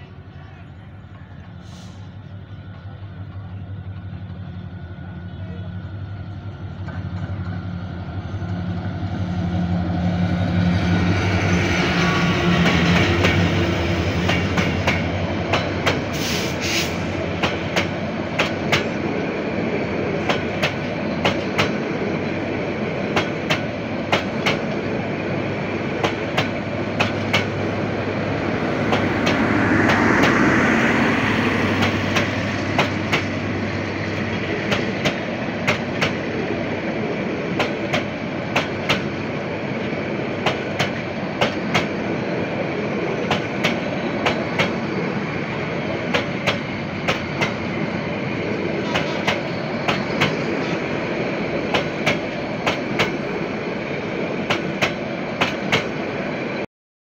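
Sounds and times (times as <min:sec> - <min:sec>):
locomotive engine: 0:00.0 - 0:56.6
train wheels clickety-clack: 0:12.4 - 0:19.0, 0:20.2 - 0:21.8, 0:23.1 - 0:24.8, 0:26.0 - 0:27.7, 0:28.8 - 0:30.5, 0:31.5 - 0:33.4, 0:34.1 - 0:36.2, 0:37.5 - 0:39.1, 0:40.4 - 0:42.0, 0:43.2 - 0:44.9, 0:46.0 - 0:47.7, 0:48.8 - 0:50.8, 0:51.6 - 0:53.3, 0:54.4 - 0:56.0.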